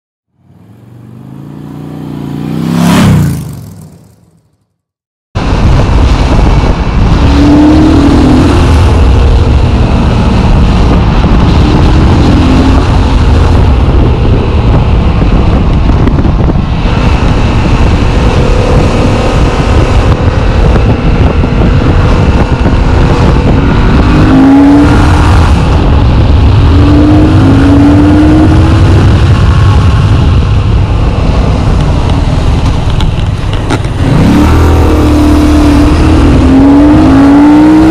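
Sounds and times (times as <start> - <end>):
motorcycle engine running: 0.5 - 37.9
heavy wind noise: 5.4 - 37.9.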